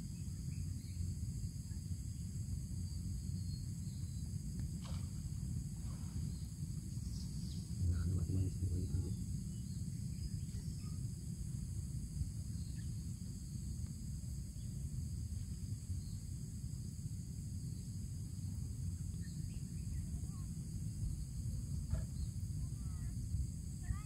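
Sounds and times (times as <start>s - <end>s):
high-pitched insect chorus: 0.0s - 24.0s
low rumble: 5.0s - 9.5s
low murmur: 6.9s - 9.3s.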